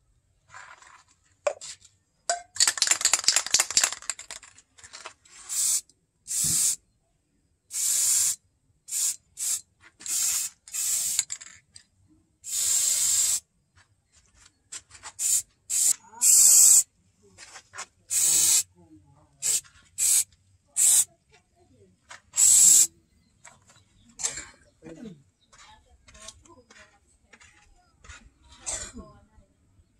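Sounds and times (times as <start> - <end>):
spray can ball rattling: 2.3 - 6.8, 7.7 - 11.7, 12.4 - 13.4, 15.0 - 16.8, 18.1 - 18.6, 19.4 - 21.1, 22.3 - 22.9
spray can hissing bursts: 5.4 - 6.8, 7.7 - 11.4, 12.4 - 13.4, 15.2 - 16.9, 18.1 - 18.7, 19.4 - 21.1, 22.4 - 22.9.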